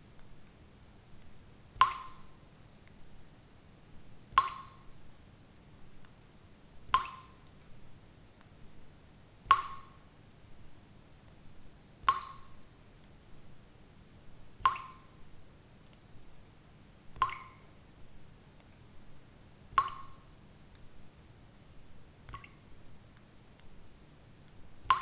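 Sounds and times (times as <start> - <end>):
faint soft ticks: 0.1 - 3.0, 15.8 - 16.2, 19.7 - 20.9
water drops plinking: 1.8 - 2.3, 4.4 - 4.9, 7.0 - 7.4, 9.5 - 10.0, 12.1 - 12.5, 14.6 - 15.1, 17.2 - 17.6, 19.7 - 20.2.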